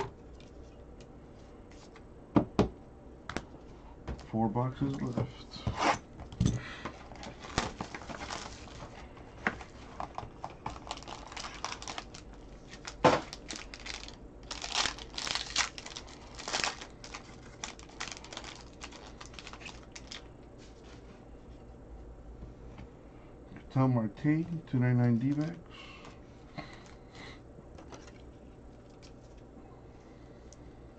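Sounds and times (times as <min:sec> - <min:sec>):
wrapper crinkling and tearing: 0:07.1 - 0:08.9, 0:09.9 - 0:20.3.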